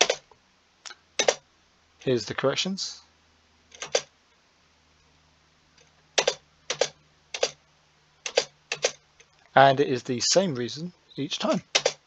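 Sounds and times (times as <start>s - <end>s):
keyboard keys clicking: 11.7s - 12.0s.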